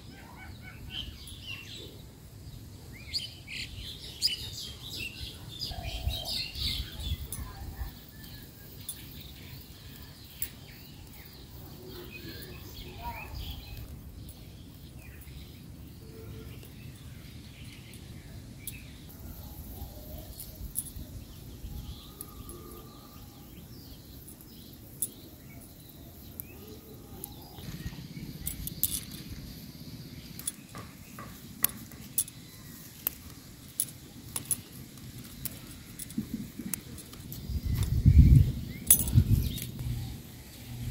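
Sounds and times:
stems snapping: 30.3 - 38.0
low steady rumble: 37.4 - 40.9.

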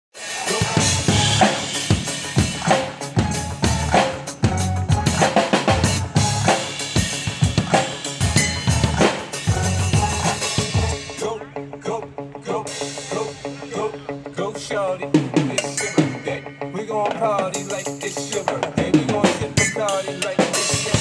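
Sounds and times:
drum solo on drum kit: 0.2 - 11.2, 17.0 - 21.0.

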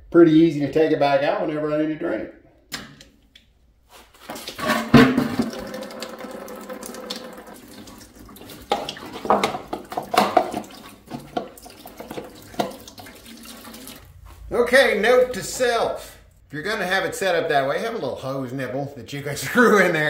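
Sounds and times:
coolant pouring and splashing: 4.2 - 14.2
plastic funnel knocking: 4.6 - 7.5, 8.6 - 12.9.

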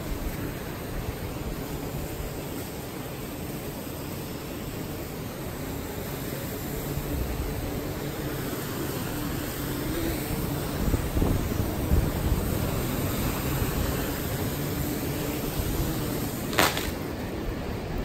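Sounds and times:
drone propellers humming: 0.0 - 18.0
wind noise on microphone: 6.6 - 8.2, 8.9 - 18.0
short splash on water: 16.5 - 17.0.

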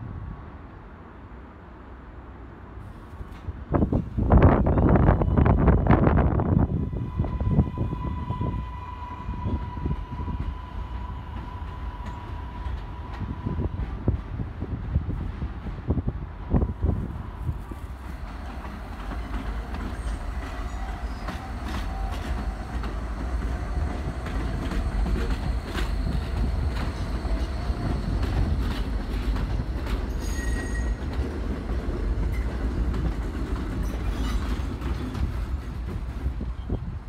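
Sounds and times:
subway train rumbling past: 0.0 - 37.0
wheel squeal: 30.1 - 31.0, 33.8 - 34.7.

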